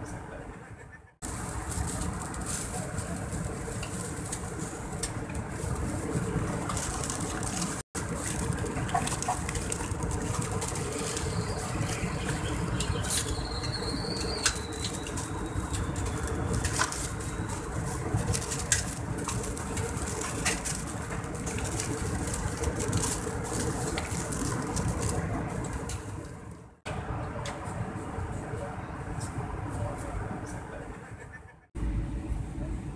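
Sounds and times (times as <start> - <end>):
plastic food wrapping crinkling: 1.2 - 26.3
aircraft cabin engine drone: 31.7 - 32.9.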